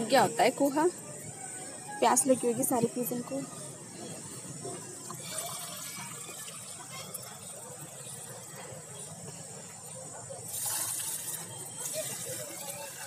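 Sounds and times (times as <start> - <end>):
water pouring and splashing: 5.0 - 9.6, 10.5 - 13.0.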